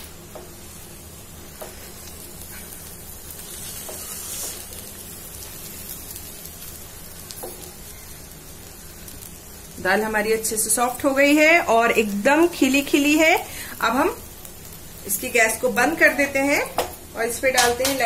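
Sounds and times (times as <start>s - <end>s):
soft sizzle from pot: 0.0s - 18.0s
spatula stirring dal in pot: 1.6s - 4.8s.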